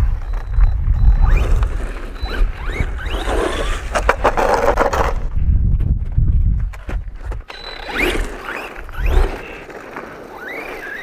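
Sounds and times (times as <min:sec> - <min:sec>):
low wind rumble: 0:00.0 - 0:09.5
toy truck motor whining: 0:01.2 - 0:04.4, 0:07.5 - 0:11.0
tyres scrabbling on concrete: 0:03.2 - 0:05.3, 0:06.8 - 0:11.0.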